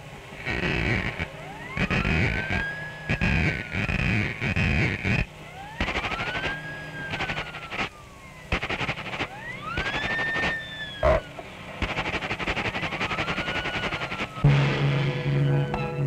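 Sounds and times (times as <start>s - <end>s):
swooping whistle effect: 1.4s - 4.6s, 5.5s - 14.5s
fast rattling percussion: 8.5s - 11.2s, 11.8s - 14.9s.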